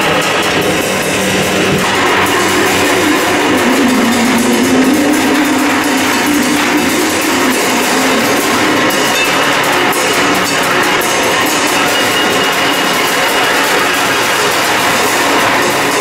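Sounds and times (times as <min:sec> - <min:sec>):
low hum: 0:00.3 - 0:13.8
electronic noise: 0:00.6 - 0:14.0
thin high tone: 0:00.8 - 0:13.0.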